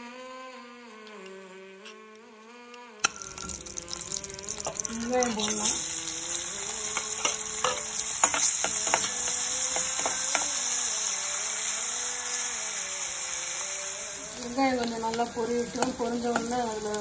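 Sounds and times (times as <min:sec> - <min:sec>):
metal spoon scraping pan: 0:03.0 - 0:12.6, 0:14.3 - 0:17.0
onion sizzling in pan: 0:03.0 - 0:17.0.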